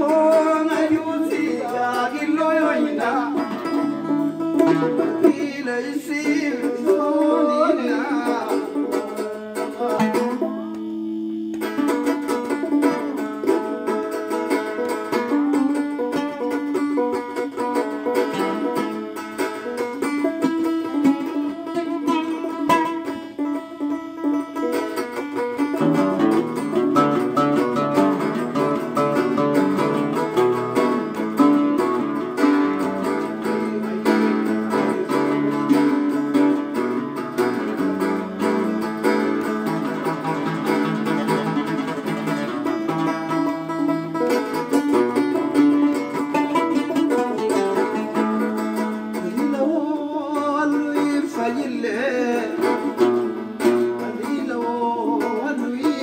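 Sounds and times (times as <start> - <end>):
plucked string instruments melody: 0.0 - 56.0.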